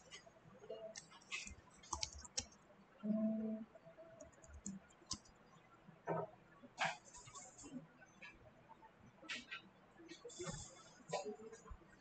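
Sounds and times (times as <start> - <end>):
keyboard keys clicking: 0.8 - 2.5.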